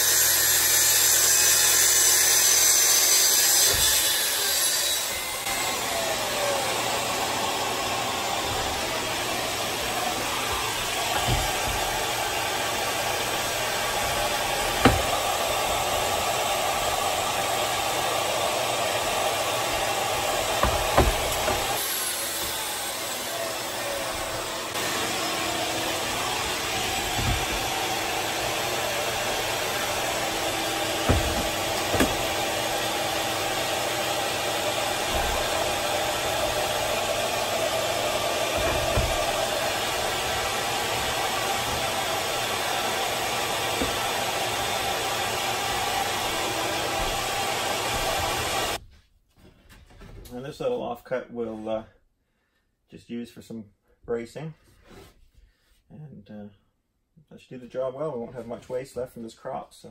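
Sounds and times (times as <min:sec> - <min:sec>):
circular saw cutting plywood: 0:00.0 - 0:48.8
sharp knocks: 0:14.2 - 0:15.2, 0:30.4 - 0:32.4.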